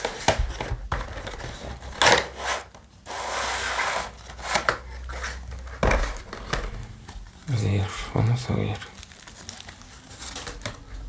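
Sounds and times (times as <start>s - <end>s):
cardboard rubbing and sliding: 0.0s - 7.3s.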